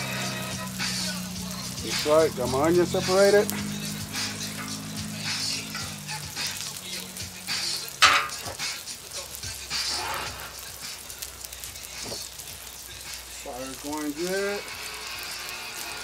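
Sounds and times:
food sizzling on a griddle: 0:00.0 - 0:16.0
metal spatula scraping steel: 0:03.5 - 0:06.0, 0:08.0 - 0:08.5, 0:09.8 - 0:10.6.

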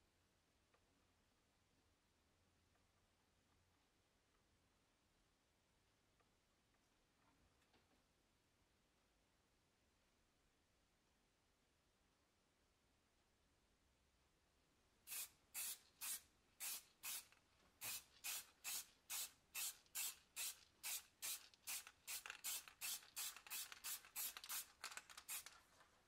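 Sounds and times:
aerosol can spraying in bursts: 0:15.1 - 0:25.5.

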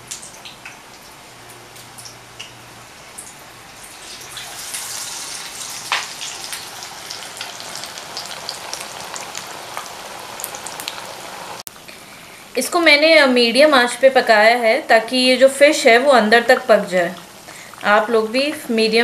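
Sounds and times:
fish deep-frying in oil: 0:03.2 - 0:11.6
oil popping and crackling: 0:03.2 - 0:11.7.

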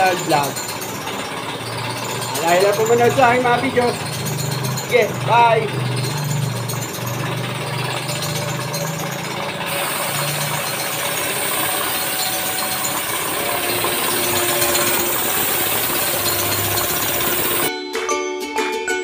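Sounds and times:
air compressor rattling: 0:00.0 - 0:17.7
high air hiss: 0:09.7 - 0:17.7.

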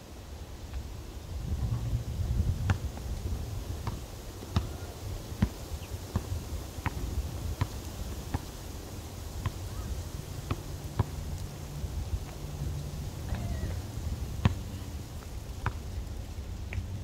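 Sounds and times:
basketball bouncing on court: 0:03.8 - 0:04.8, 0:10.5 - 0:11.2, 0:14.4 - 0:14.7.

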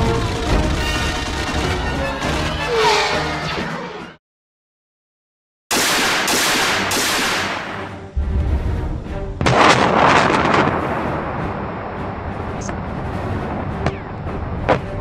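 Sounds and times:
low rumble: 0:08.1 - 0:15.0
large explosions: 0:08.2 - 0:14.6.

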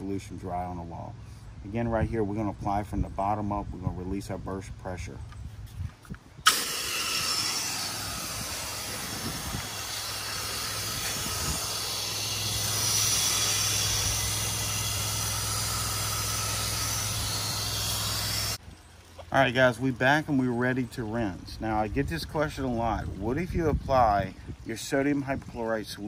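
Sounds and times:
pressure washer spray hissing: 0:06.4 - 0:18.6
low steady hum: 0:06.4 - 0:22.0.

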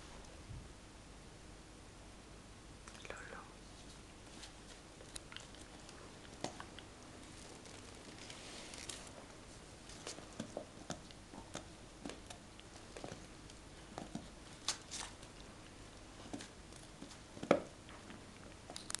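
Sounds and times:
dog chewing: 0:04.5 - 0:19.0.

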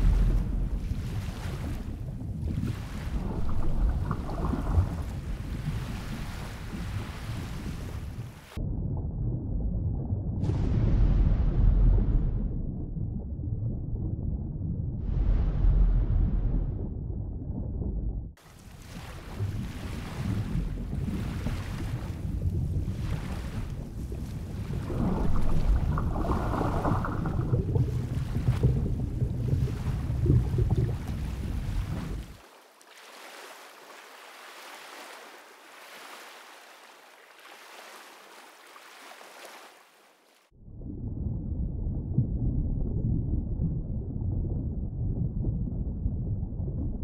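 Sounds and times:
steady low rumble: 0:00.0 - 0:07.1, 0:08.0 - 0:18.4, 0:19.3 - 0:32.2, 0:40.5 - 0:47.0
water gurgling and bubbling: 0:00.0 - 0:32.4.

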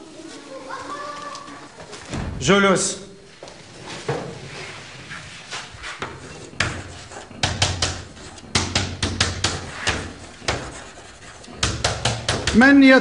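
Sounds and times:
chalk tapping on a blackboard: 0:05.8 - 0:13.0.

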